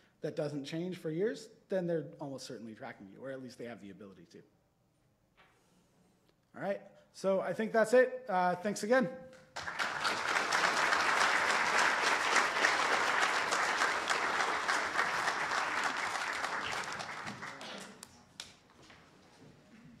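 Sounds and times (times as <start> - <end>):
audience applauding: 9.6 - 18.5.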